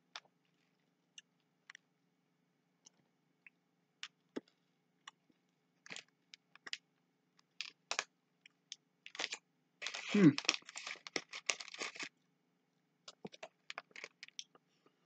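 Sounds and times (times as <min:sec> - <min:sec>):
person eating candy from a bag: 0:09.1 - 0:12.1, 0:13.1 - 0:14.5.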